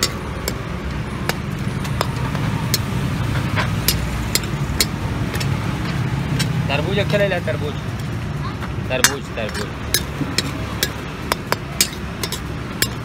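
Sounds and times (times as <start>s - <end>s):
metal ladle clinking on wok: 9.0s - 13.0s.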